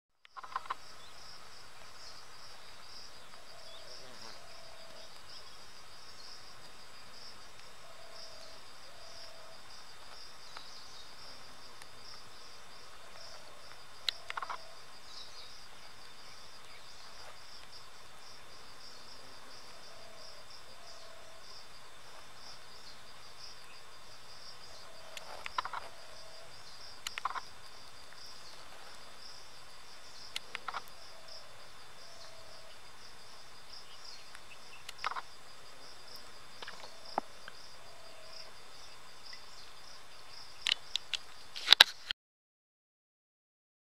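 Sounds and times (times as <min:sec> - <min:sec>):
crickets trilling: 0:00.2 - 0:42.1.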